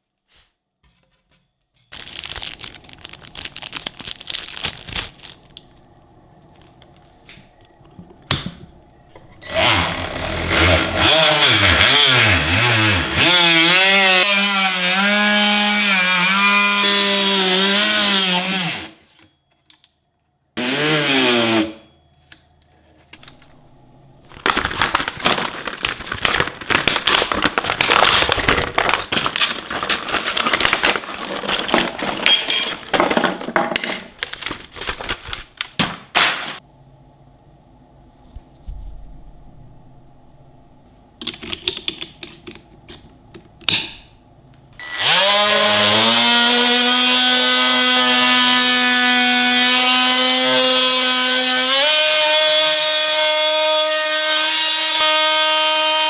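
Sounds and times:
plastic packaging crinkling: 1.9 - 7.7, 22.2 - 33.5, 34.1 - 36.6
oscillating multi-tool cutting wood: 9.4 - 19.2, 20.6 - 21.8, 44.8 - 56.0.

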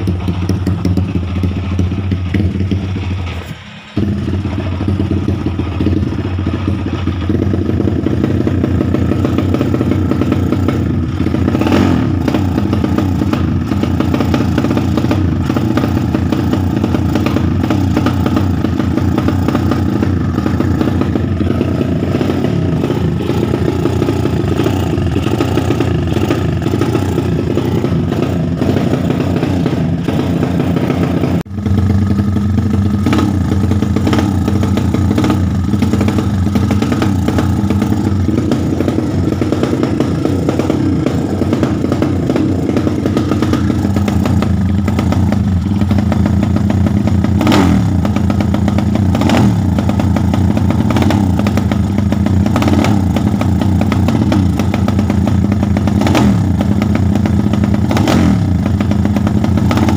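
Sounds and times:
motorcycle engine idling: 0.0 - 59.9.

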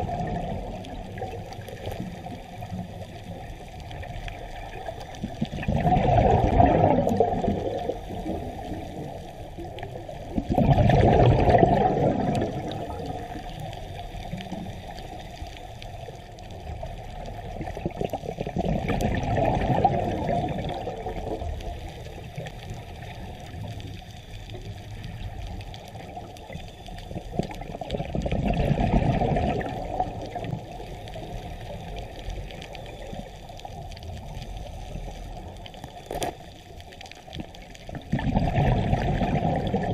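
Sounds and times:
underwater water noise: 0.0 - 39.9
diver exhaling bubbles through regulator: 5.2 - 9.1, 10.3 - 13.4, 17.6 - 21.4, 27.3 - 30.8, 37.9 - 39.9.

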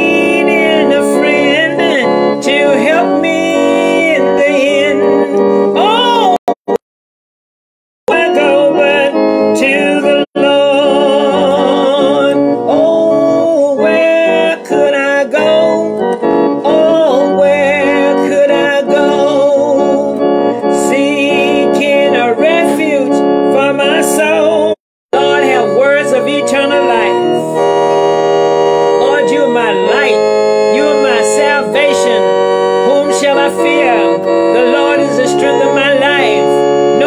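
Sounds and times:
woman singing gospel: 0.0 - 5.0, 32.9 - 36.6
keyboard accompaniment: 0.0 - 6.8, 8.1 - 37.0.

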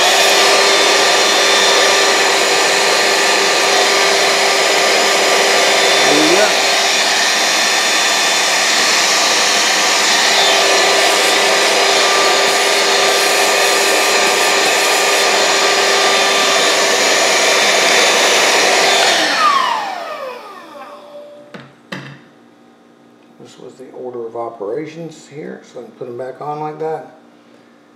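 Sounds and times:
handheld vacuum running: 0.0 - 21.4
motor winding down whine: 0.0 - 21.5.

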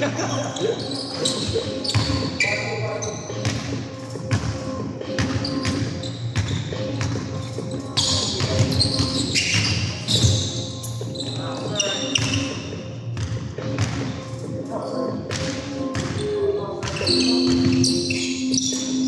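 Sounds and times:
shoes squeaking on floor: 0.0 - 19.0
basketball bouncing on wooden floor: 4.3 - 7.3, 8.0 - 10.5, 13.2 - 14.1, 15.3 - 16.2, 16.8 - 17.8.

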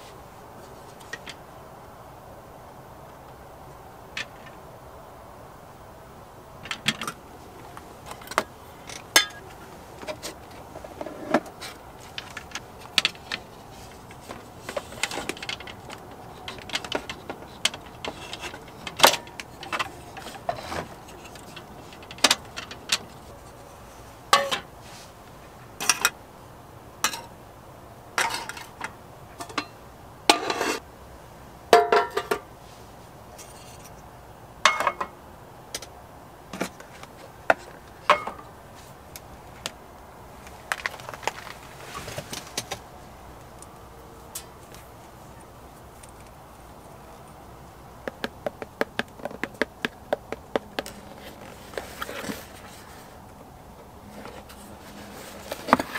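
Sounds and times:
metal cookware set down: 31.8 - 32.4.

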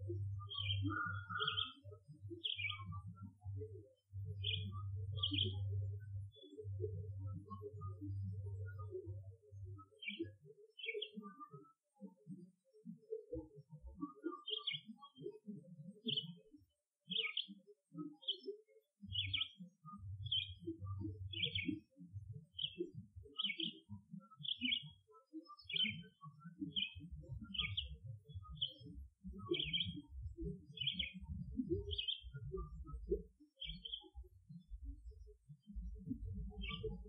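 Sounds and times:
songbird chirping: 0.0 - 11.7, 13.3 - 16.5, 17.1 - 37.0.

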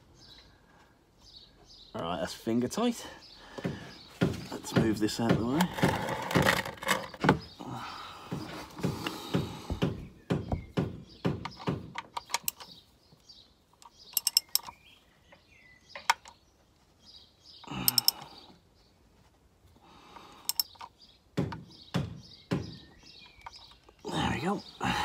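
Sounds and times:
ratchet clicking: 14.1 - 14.8, 20.5 - 20.9.

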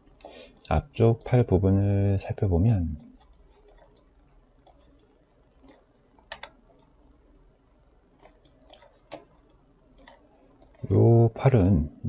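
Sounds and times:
low steady hum: 0.0 - 12.0
faint small clicks: 3.0 - 7.0.

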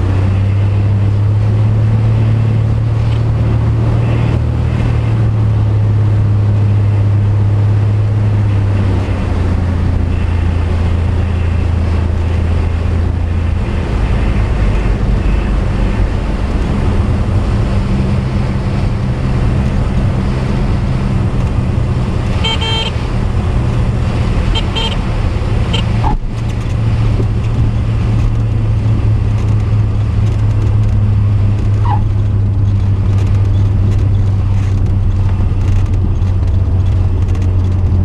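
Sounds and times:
aircraft engine drone: 0.0 - 37.2
touchdown rumble: 0.0 - 38.0
high tone: 22.4 - 23.0, 24.5 - 25.0.

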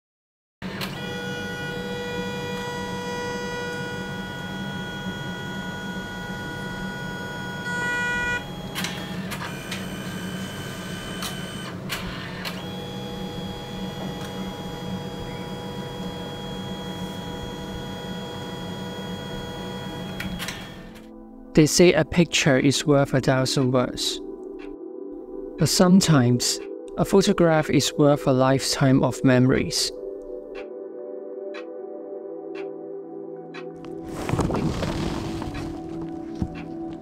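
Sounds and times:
printer motor whine: 0.6 - 21.1
printer mechanism clicks: 8.7 - 9.9.

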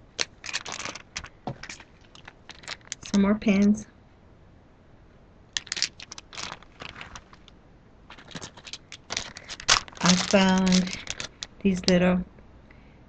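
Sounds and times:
plastic packaging crinkling: 0.0 - 3.2, 5.6 - 12.0.

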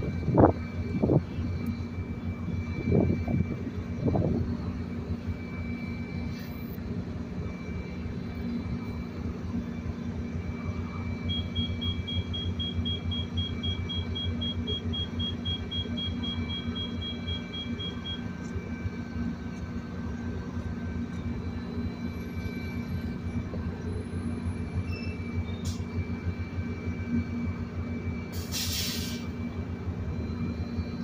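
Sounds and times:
diesel locomotive idling: 0.0 - 31.0
rapid high beeping: 10.4 - 18.4.

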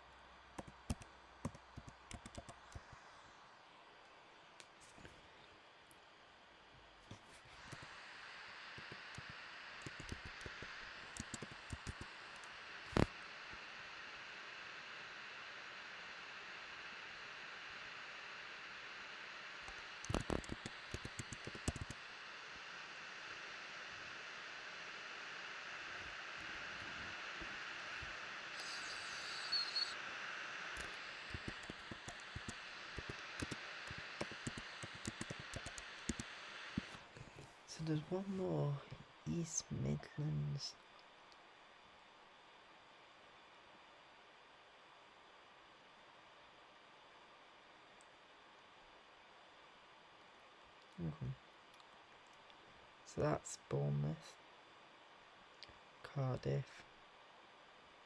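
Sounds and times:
steady background hiss: 0.0 - 58.0
keyboard key clicks: 0.6 - 2.8, 31.3 - 36.2.

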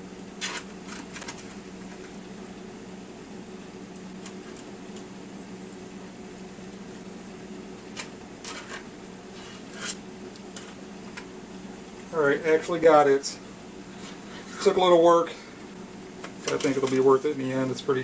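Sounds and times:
steady low hum: 0.0 - 18.0
fork scraping pie tin: 8.4 - 10.0.

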